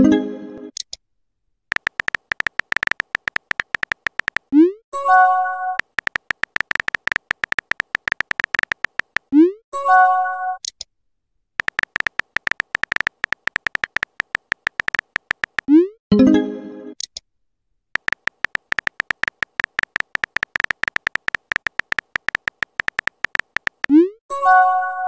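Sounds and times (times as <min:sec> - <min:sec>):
phone keyboard typing clicks: 0:01.7 - 0:04.5, 0:05.8 - 0:09.3, 0:11.6 - 0:15.7, 0:18.0 - 0:24.0.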